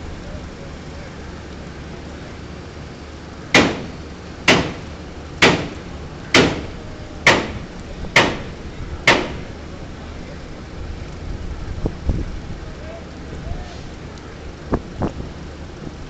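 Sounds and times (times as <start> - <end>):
steady low rumble: 0.0 - 16.0
pile-driving hammer clanking: 3.5 - 9.5.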